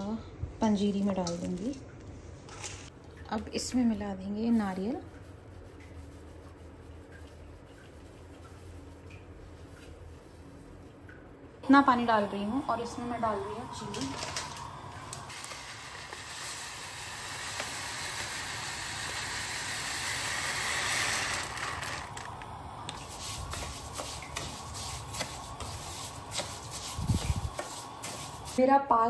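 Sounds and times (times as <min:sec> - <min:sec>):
sugar pouring into a pan: 0:12.0 - 0:28.6
spatula scraping wet sugar: 0:22.9 - 0:28.6.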